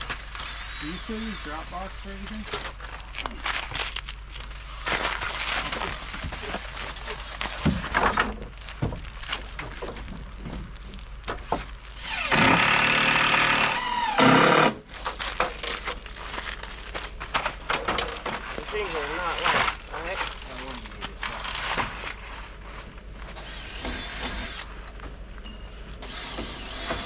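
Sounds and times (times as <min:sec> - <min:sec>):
power drill running: 0:00.3 - 0:02.4, 0:12.0 - 0:14.8, 0:23.4 - 0:24.7, 0:26.0 - 0:27.0.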